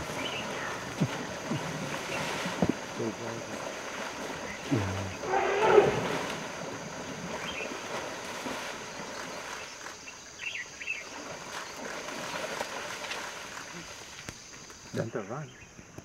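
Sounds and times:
water sloshing and splashing: 0.0 - 14.9
elephant cry: 4.6 - 6.3.

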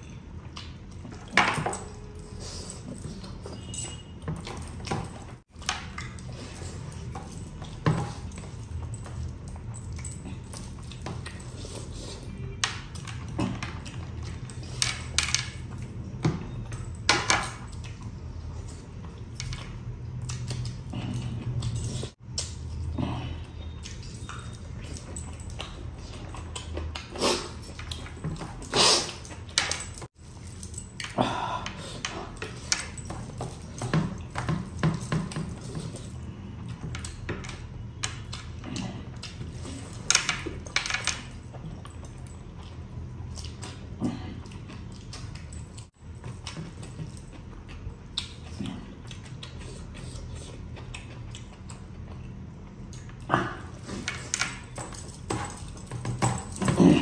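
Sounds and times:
wet chewing and smacks: 0.0 - 1.3, 17.7 - 31.1, 41.3 - 54.0
metal jewellery clinking: 53.8 - 57.0.

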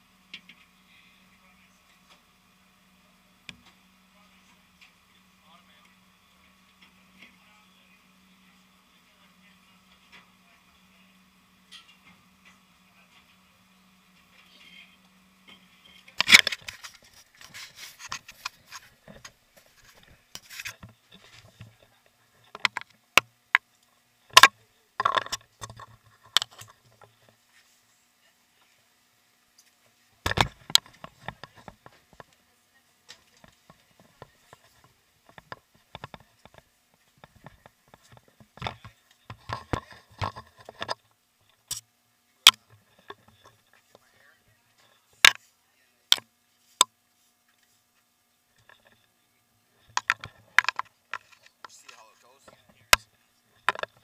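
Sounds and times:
rubbing and scraping: 15.8 - 21.8
camera handling knocks and clicks: 30.3 - 31.8.

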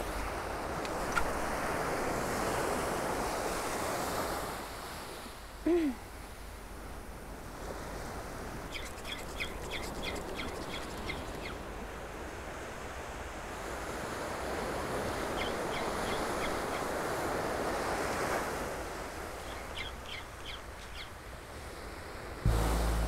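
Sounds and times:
small waves breaking on beach: 0.0 - 5.6, 11.0 - 19.7.

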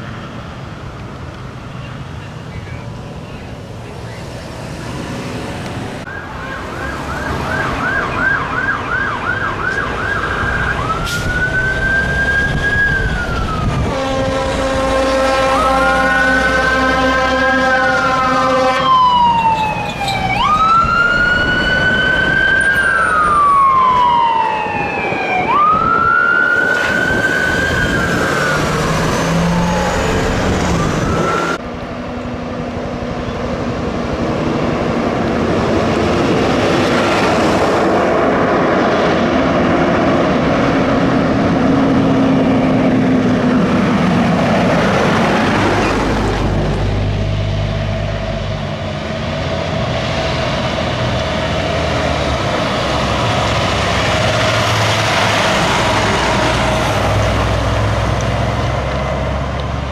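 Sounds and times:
electronic sirens yelping and wailing: 6.0 - 14.1, 15.3 - 31.6
air horn: 13.8 - 19.0.

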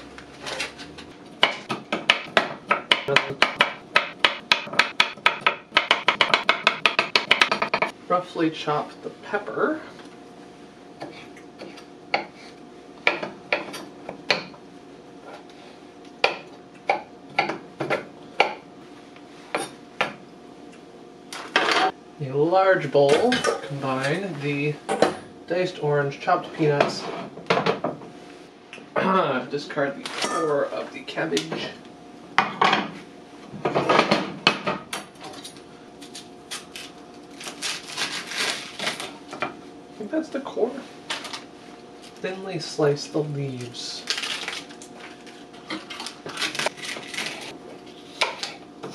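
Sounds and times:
knife chopping on wooden board: 1.4 - 7.9, 16.2 - 18.6.

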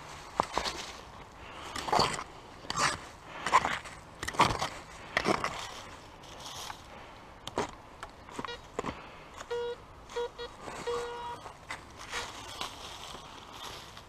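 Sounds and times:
metal detector low beeps: 8.3 - 8.7, 9.4 - 11.5.

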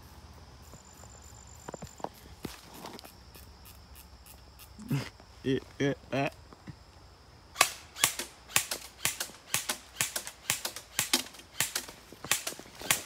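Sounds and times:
airsoft gun firing rapid shots: 7.6 - 13.0.

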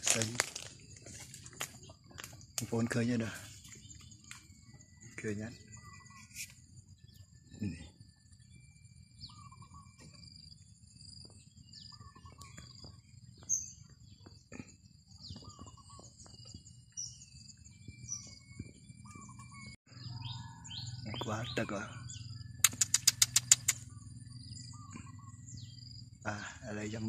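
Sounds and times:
bird call: 1.6 - 8.6, 9.2 - 10.6, 11.2 - 27.0
sharp clicks: 22.6 - 23.9.

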